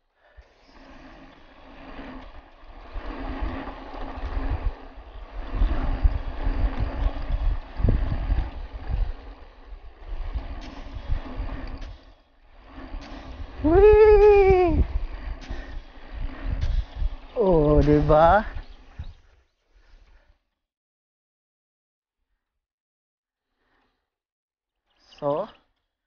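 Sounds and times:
bike tyres rolling on dirt: 0.1 - 20.0
wind buffeting microphone: 0.8 - 19.3.

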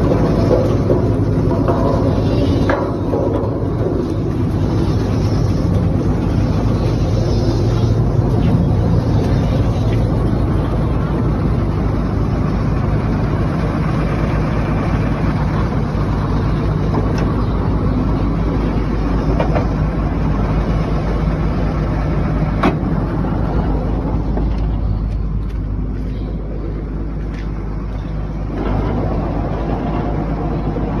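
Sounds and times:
vehicle engine rumbling: 0.0 - 31.0.

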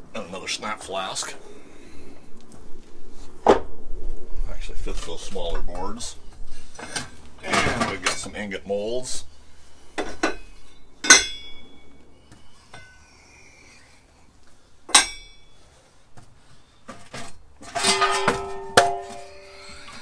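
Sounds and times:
metal molds clanking: 17.6 - 20.0.

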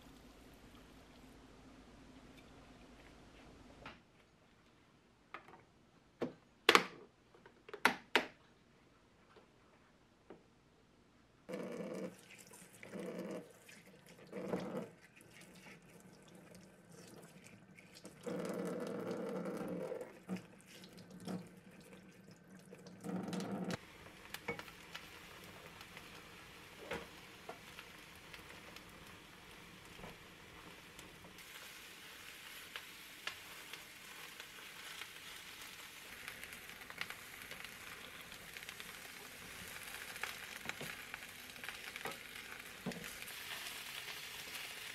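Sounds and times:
eggplant sizzling in a frying pan: 23.7 - 44.9.

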